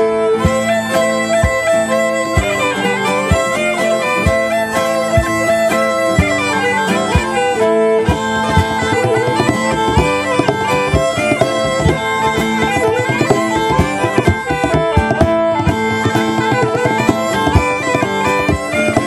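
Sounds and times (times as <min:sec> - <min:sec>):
acoustic guitar: 0:00.0 - 0:19.0
bagpipe melody over drone: 0:00.0 - 0:19.0
fiddles: 0:00.0 - 0:19.0
drum beat: 0:08.0 - 0:19.0.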